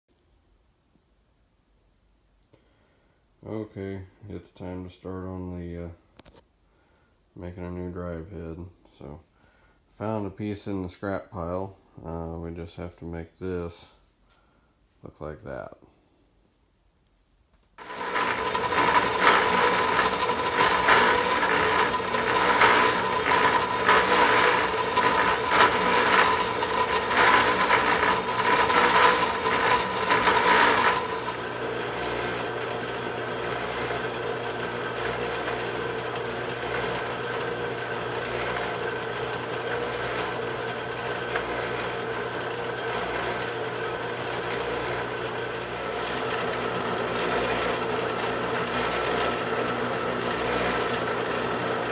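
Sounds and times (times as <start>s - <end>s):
bandsaw cutting steel: 17.8s - 51.9s.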